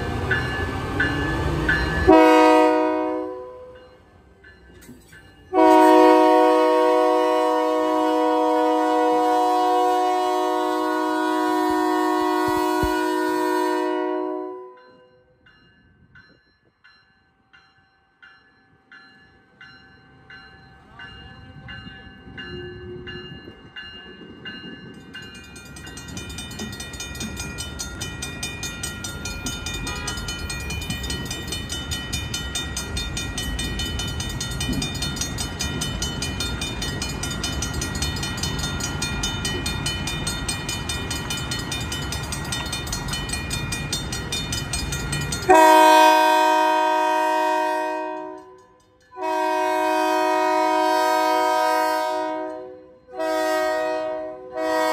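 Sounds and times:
diesel locomotive engine: 0.0s - 16.4s, 18.7s - 54.9s
locomotive bell ringing: 0.0s - 54.0s
train horn blast: 2.0s - 3.8s, 5.5s - 15.1s, 29.9s - 30.2s, 45.5s - 54.9s.

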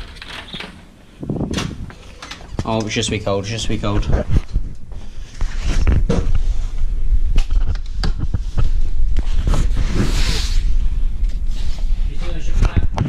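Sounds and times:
low rumble: 3.1s - 13.0s.

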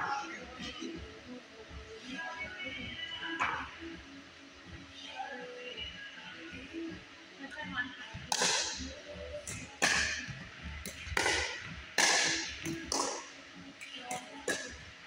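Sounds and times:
paddles striking plastic ball: 10.8s - 13.2s.

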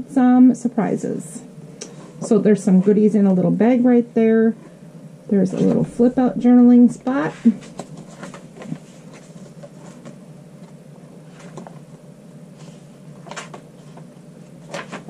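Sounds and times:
paper pages rustling: 7.2s - 12.0s, 12.6s - 15.0s.

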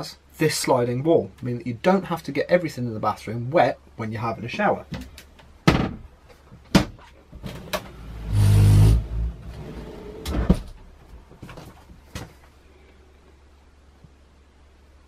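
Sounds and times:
wooden wall sliding: 7.4s - 10.9s.

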